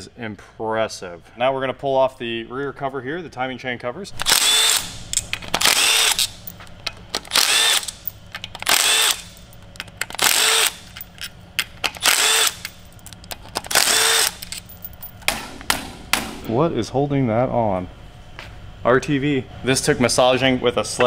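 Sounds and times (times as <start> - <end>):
cordless driver motor whirring: 4.2 - 14.7.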